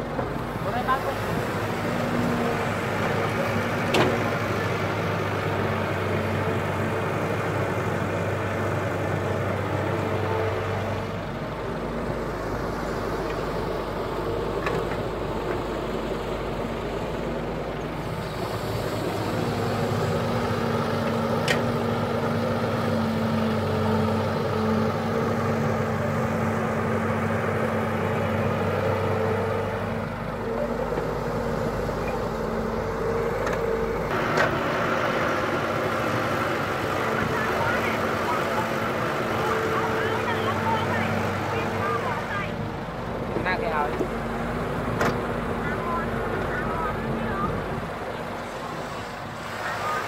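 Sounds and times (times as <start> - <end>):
diesel engines running: 0.0 - 50.0.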